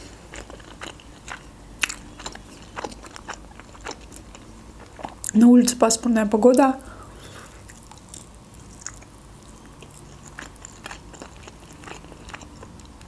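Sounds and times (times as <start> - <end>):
chewing food: 0.0 - 5.4, 7.1 - 13.0.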